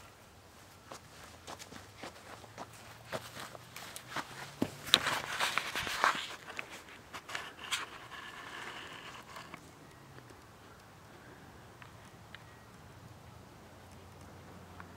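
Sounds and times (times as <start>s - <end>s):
rustling handling noise: 0.0s - 9.7s
faint hum: 0.0s - 14.9s
footsteps on grass: 0.5s - 7.2s.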